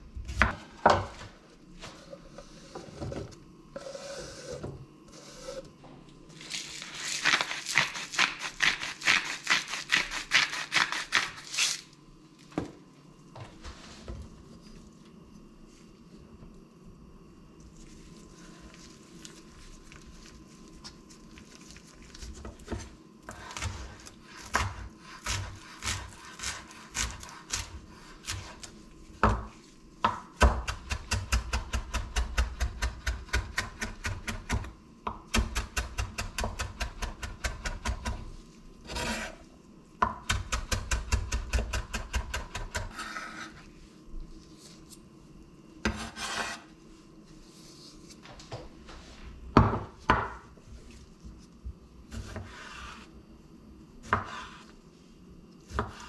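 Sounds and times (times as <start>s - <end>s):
knife chopping on cutting board: 22.7s - 28.6s, 29.2s - 38.2s, 52.1s - 53.0s, 54.0s - 54.6s, 55.7s - 56.0s.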